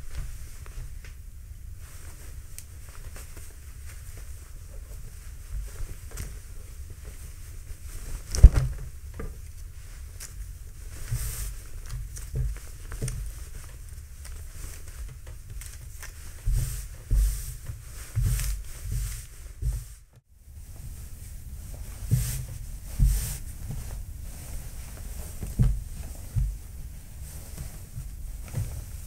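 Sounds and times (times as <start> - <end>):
fabric rustling: 0.0 - 29.0
soft thumps: 20.7 - 29.0.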